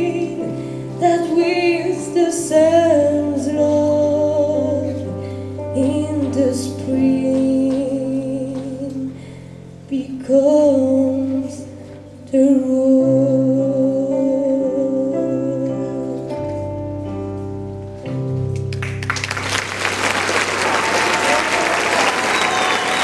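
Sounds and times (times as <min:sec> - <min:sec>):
woman singing with vibrato: 0:00.0 - 0:05.1, 0:05.7 - 0:09.2, 0:09.8 - 0:16.3
audience applause: 0:18.7 - 0:23.0.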